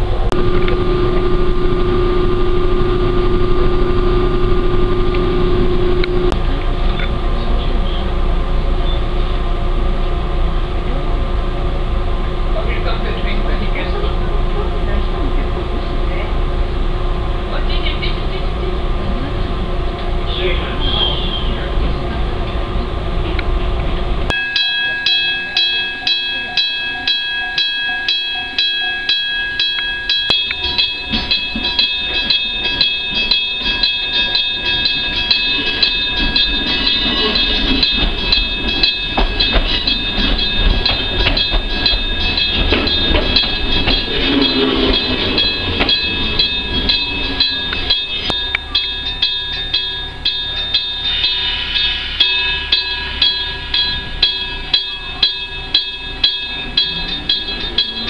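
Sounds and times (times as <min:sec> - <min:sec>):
level-crossing bell ringing: 0:00.0 - 0:06.4, 0:24.3 - 0:58.0
railcar running into station: 0:00.0 - 0:58.0.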